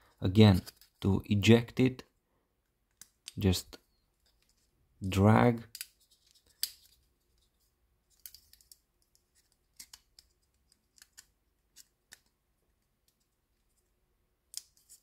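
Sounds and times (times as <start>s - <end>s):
small plastic clicks and scratches: 5.7s - 13.9s, 14.5s - 15.0s.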